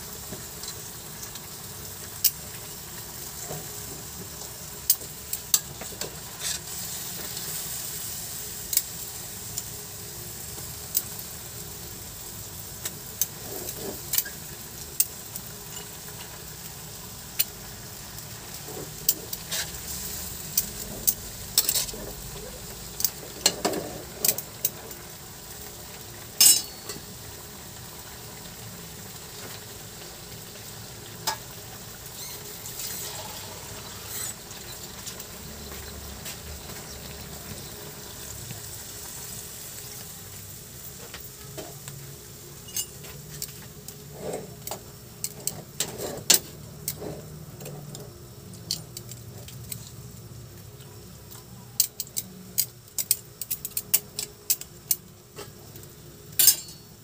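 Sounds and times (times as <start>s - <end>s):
meat and potatoes sizzling in a wok: 0.0s - 57.0s
metal tongs clicking and scraping: 20.6s - 22.1s.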